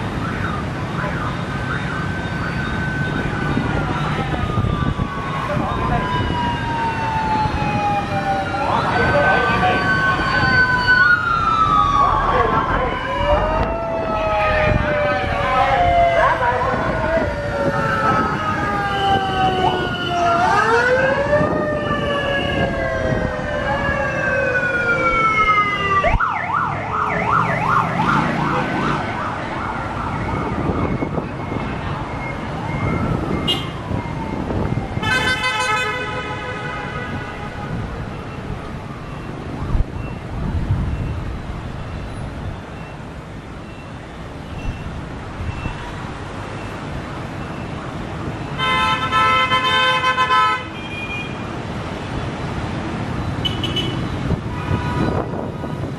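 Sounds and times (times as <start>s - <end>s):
fast pulsing siren: 0.0s - 35.9s, 37.1s - 41.3s
sirens wailing: 0.0s - 55.9s
street traffic: 0.0s - 55.9s.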